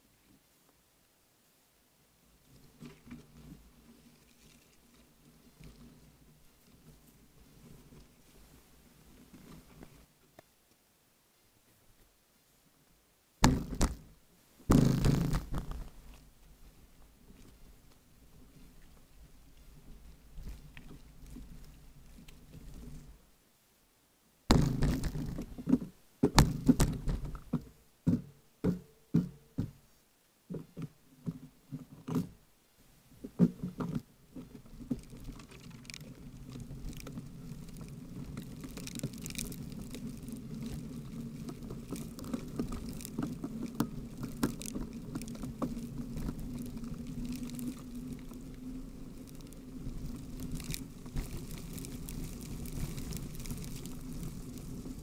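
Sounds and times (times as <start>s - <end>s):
bicycle knocking over potholes: 13.4s - 16.2s, 24.5s - 29.8s, 33.3s - 55.0s
tyres rumbling on wet asphalt: 36.1s - 55.0s.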